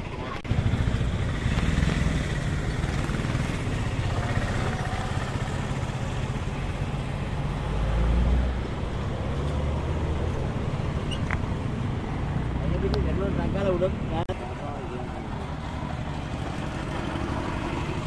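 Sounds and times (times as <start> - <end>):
engine idling: 0.2 - 7.1, 14.4 - 18.0.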